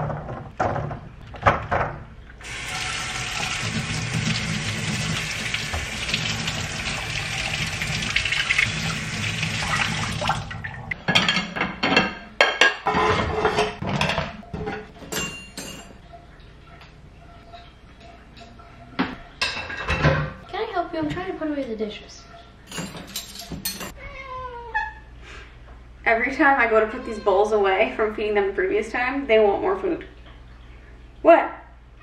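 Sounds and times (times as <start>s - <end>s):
faucet sprayer running water: 2.4s - 10.4s
dishes clattering: 11.0s - 16.1s, 17.5s - 20.4s, 22.7s - 24.0s.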